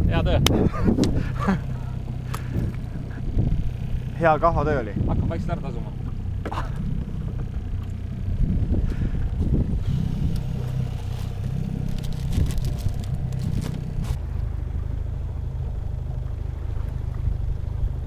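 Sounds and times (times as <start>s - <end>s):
outboard motor running: 0.0s - 18.0s
fishing gear knocking and rattling: 10.4s - 14.2s.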